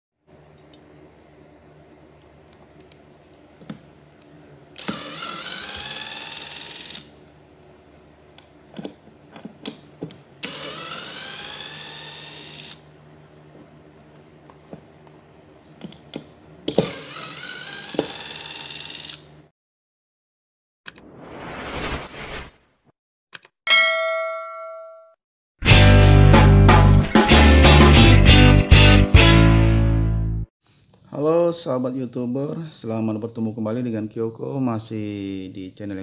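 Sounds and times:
electric screwdriver motor whirring: 4.8 - 7.1, 10.4 - 12.8, 16.7 - 19.3.

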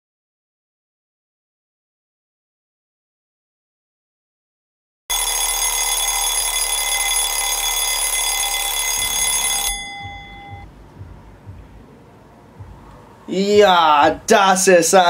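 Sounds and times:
alarm clock ringing: 5.1 - 10.6.

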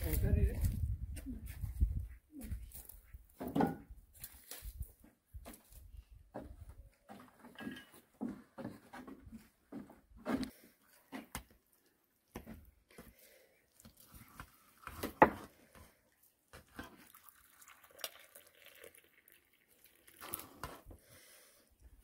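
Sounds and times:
tableware clinks and scrapes: 7.5 - 8.0.

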